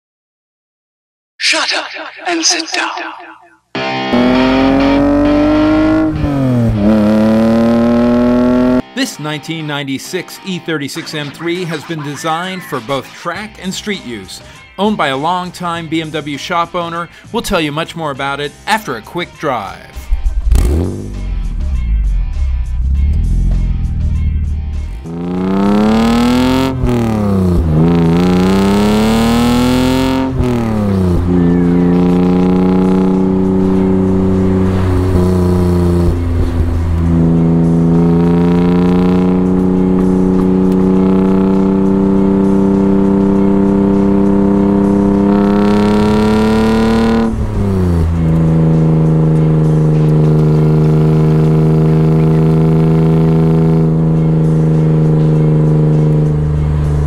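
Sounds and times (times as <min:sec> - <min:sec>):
car engine revving: 0:03.8 - 0:08.8, 0:19.9 - 0:57.0.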